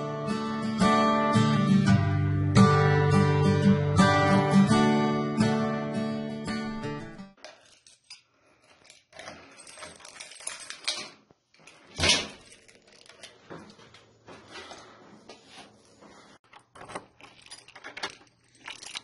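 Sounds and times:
keys jangling: 7.4 - 13.4, 16.5 - 19.0
key working in a door lock: 16.5 - 19.0.

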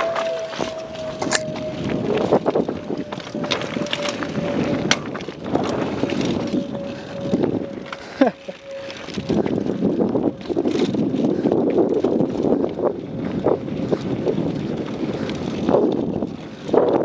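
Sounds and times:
tyres crunching over stones: 0.0 - 7.1
faint steady whine: 0.0 - 11.9
bike rattling and clicking: 0.0 - 17.0
wind rushing on microphone: 0.0 - 17.0.

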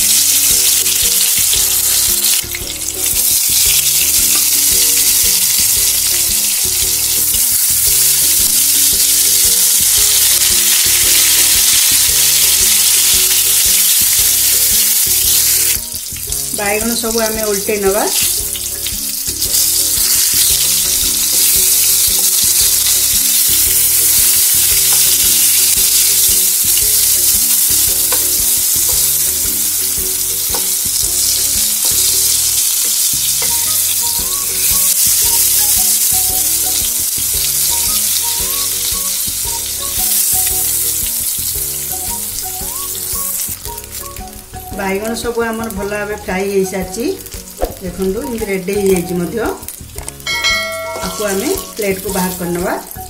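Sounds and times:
vegetables sizzling in oil: 0.0 - 53.0
spatula tapping: 18.1 - 37.7, 50.0 - 52.7.

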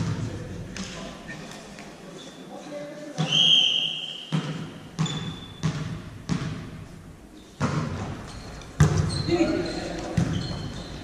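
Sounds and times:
ball bouncing on hall floor: 0.0 - 1.1, 4.3 - 6.9, 7.6 - 11.0
referee's whistle: 3.2 - 4.4.

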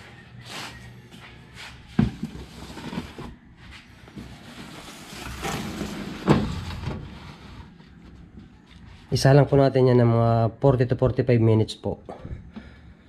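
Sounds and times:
pan scraping and rustling: 2.1 - 3.4, 4.1 - 7.8.

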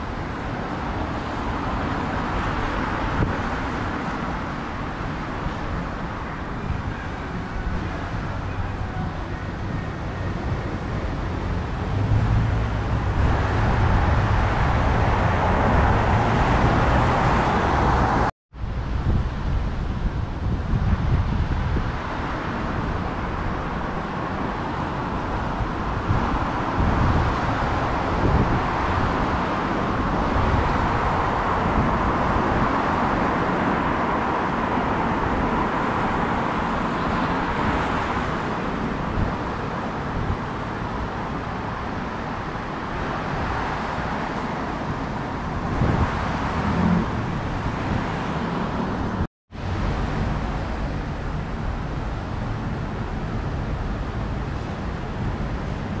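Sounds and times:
cars passing on wet road: 0.0 - 56.0.

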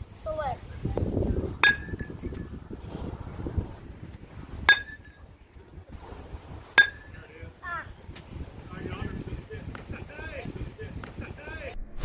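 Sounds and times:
wind rumble on microphone: 0.0 - 12.0
metal bat hitting ball: 1.6 - 2.4, 4.6 - 5.2, 6.8 - 7.2.

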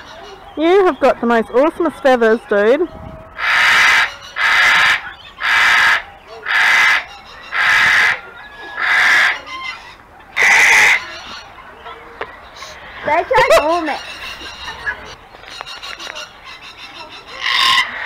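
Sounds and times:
cockatoo screeching: 3.4 - 11.5, 13.9 - 18.0.

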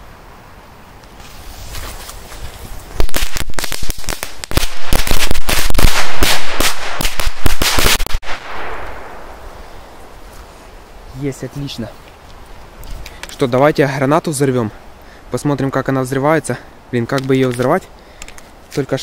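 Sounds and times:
firecracker fuse fizzing: 1.1 - 8.7
firecrackers banging: 2.9 - 9.2.

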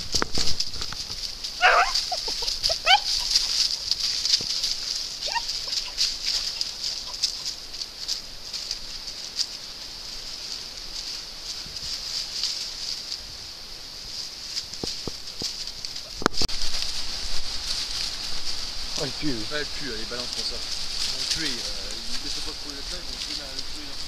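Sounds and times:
high-pitched hiss: 0.0 - 24.0
rustling in dry leaves: 0.0 - 24.0
puppies yelping: 1.5 - 7.6.

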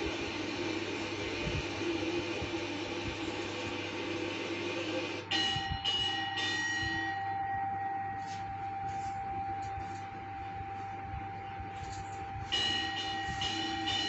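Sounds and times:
long steady bell tone: 5.2 - 14.0
temple bell ringing: 5.3 - 9.6, 12.4 - 14.0.

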